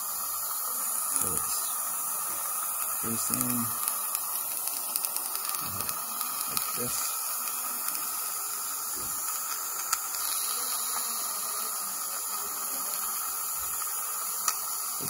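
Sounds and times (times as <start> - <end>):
dental suction hissing: 0.0 - 15.0.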